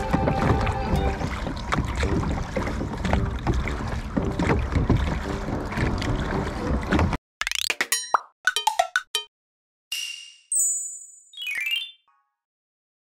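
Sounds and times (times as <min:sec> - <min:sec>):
oars knocking: 0:00.0 - 0:07.2
water: 0:00.0 - 0:07.8.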